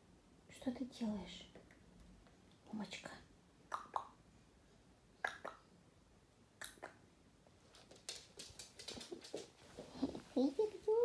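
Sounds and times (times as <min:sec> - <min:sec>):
dog claws clicking on floor: 0:07.6 - 0:10.2.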